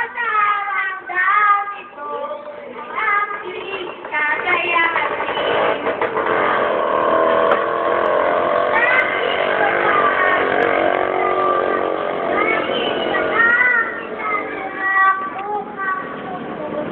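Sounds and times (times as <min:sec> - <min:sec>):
girls singing karaoke: 0:00.0 - 0:06.3, 0:08.4 - 0:16.9.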